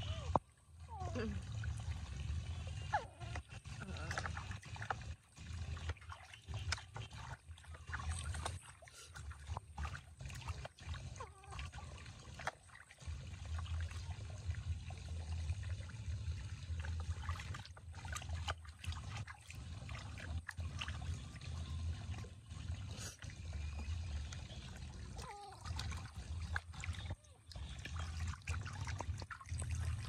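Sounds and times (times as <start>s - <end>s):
low steady rumble: 0.0s - 30.0s
small water splashes: 0.0s - 30.0s
water sloshing in plastic basin: 0.0s - 30.0s.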